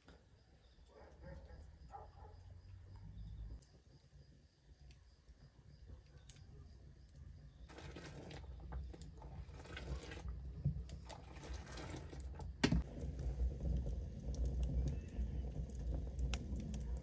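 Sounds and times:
wood fire crackling: 0:06.0 - 0:17.0
fire popping: 0:07.4 - 0:17.0
low steady rumble: 0:12.8 - 0:17.0.

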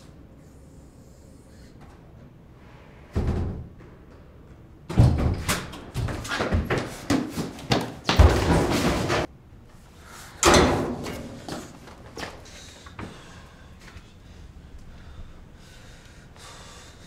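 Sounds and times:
metal doors slamming: 0:10.4 - 0:11.4.

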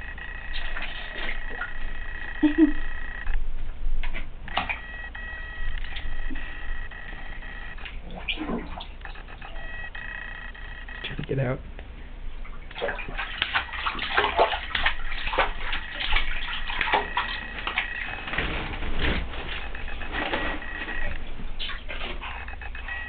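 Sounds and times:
bathwater splashing in a tub: 0:00.0 - 0:02.7, 0:12.4 - 0:22.4.

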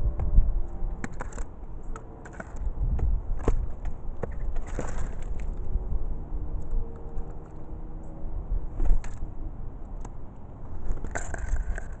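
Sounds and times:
steady low rumble: 0:00.0 - 0:01.9.

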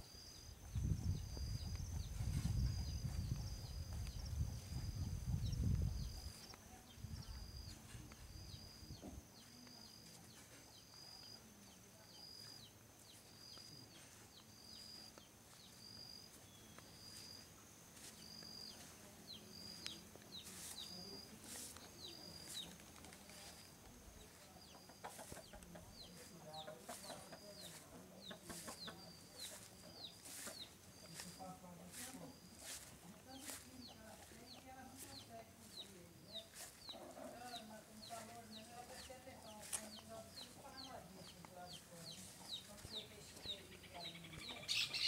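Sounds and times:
wind rumble on microphone: 0:00.5 - 0:09.0
hen clucking: 0:24.2 - 0:32.8.

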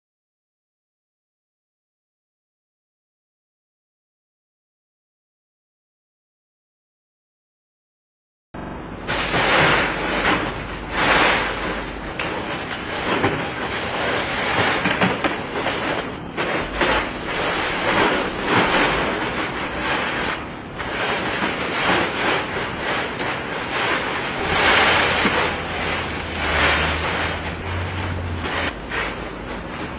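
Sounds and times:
ice cubes clattering and crunching: 0:09.1 - 0:29.9.

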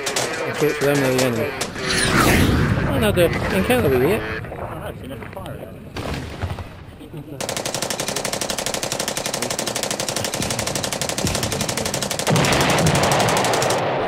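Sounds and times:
automatic gunfire: 0:07.4 - 0:14.0.

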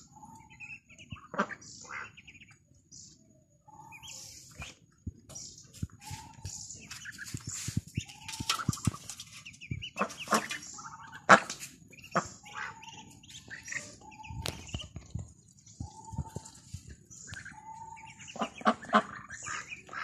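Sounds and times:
ducklings peeping: 0:00.0 - 0:20.0
ducks quacking: 0:00.1 - 0:02.6, 0:07.0 - 0:15.0, 0:17.2 - 0:20.0.

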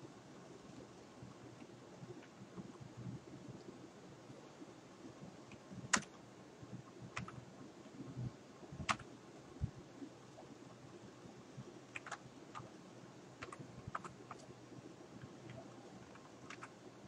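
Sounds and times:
faint hiss: 0:00.0 - 0:17.0
keyboard key clicks: 0:07.2 - 0:07.4, 0:08.8 - 0:09.0, 0:12.0 - 0:12.7, 0:16.5 - 0:16.7.

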